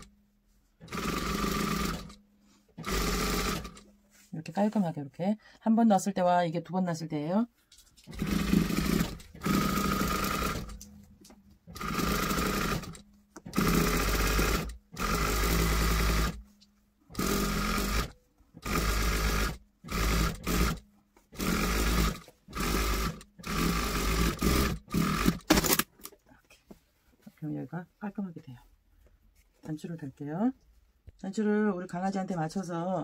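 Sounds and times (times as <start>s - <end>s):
sewing machine running: 0.8s - 2.2s, 2.8s - 3.8s, 8.1s - 10.8s, 11.7s - 16.4s, 17.1s - 25.8s.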